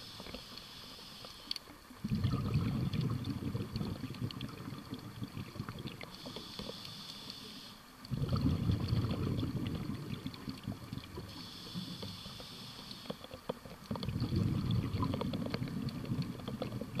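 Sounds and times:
regulator hissing inhale: 0.0 - 1.6, 6.0 - 8.0, 11.2 - 13.3
faint clicks: 0.0 - 2.0, 5.6 - 8.2, 10.3 - 14.1, 14.8 - 17.0
rumbling exhaled bubbles: 2.0 - 6.2, 8.1 - 11.3, 13.8 - 17.0.

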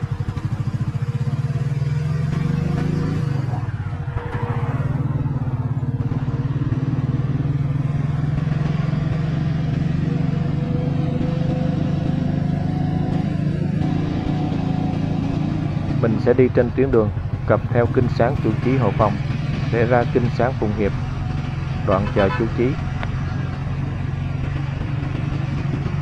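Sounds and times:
motorbike engine running: 0.0 - 26.0
vehicle passing: 2.1 - 9.4, 13.8 - 25.0.

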